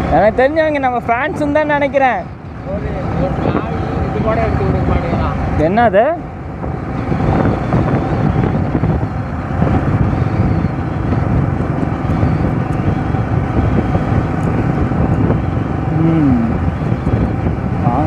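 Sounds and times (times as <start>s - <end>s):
wind rushing over microphone: 0.0s - 18.0s
motorcycle engine running: 2.3s - 18.0s
short falling tone: 15.9s - 16.7s.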